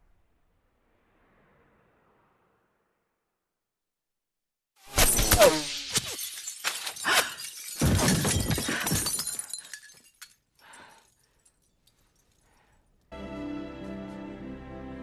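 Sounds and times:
glass shattering and falling: 4.9s - 12.8s.

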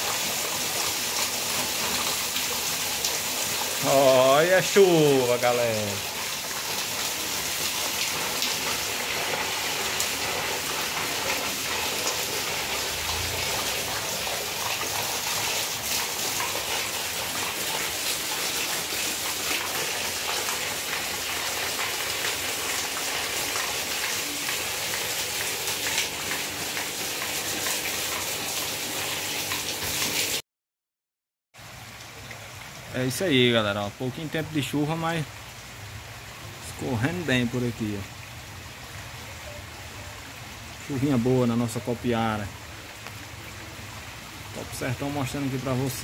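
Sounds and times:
heavy rain falling: 0.0s - 30.4s.

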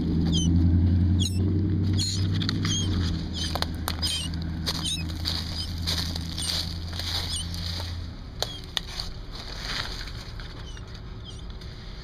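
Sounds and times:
baby birds chirping: 0.0s - 7.8s, 8.4s - 8.9s, 10.5s - 11.6s
low hum: 0.0s - 12.0s
rustling and handling noise: 2.2s - 11.8s.

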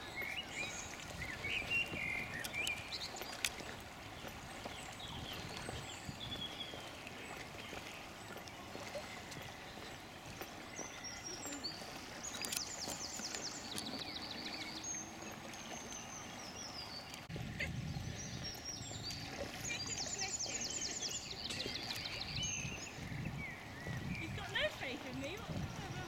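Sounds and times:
wind rumble on microphone: 0.0s - 3.2s, 3.9s - 6.8s, 17.3s - 26.0s
songbird singing: 0.0s - 26.0s.

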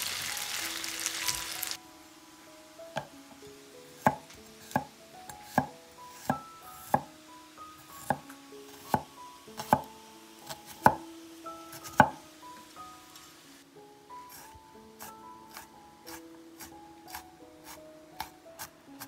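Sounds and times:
knife striking wooden board: 4.0s - 4.9s.

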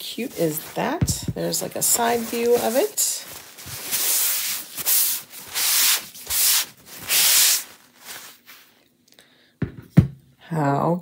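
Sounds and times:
cloth wiping a surface: 0.2s - 8.7s.

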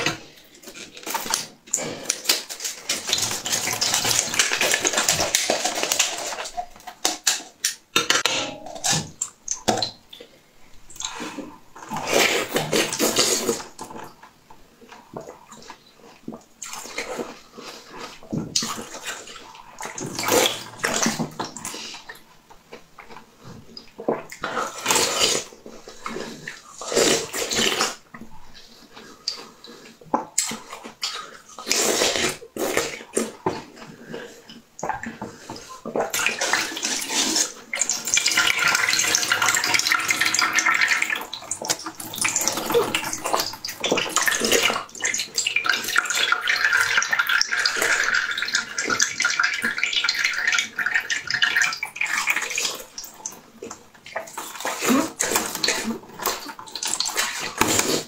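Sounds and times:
ice being bitten and chewed: 36.0s - 46.0s.

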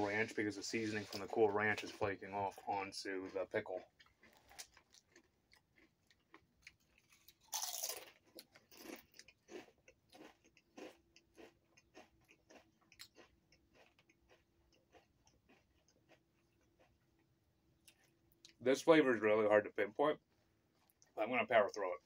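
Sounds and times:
chips being crunched: 7.5s - 9.6s.

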